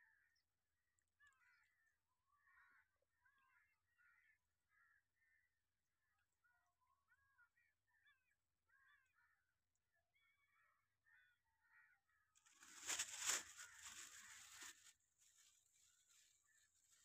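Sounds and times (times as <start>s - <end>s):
faint birds chirping: 0.0s - 17.0s
loud rustling: 12.5s - 14.8s.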